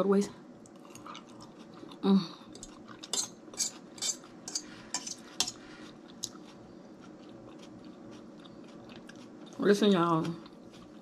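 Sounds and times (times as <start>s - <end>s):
metal fork scraping dish: 2.6s - 5.6s.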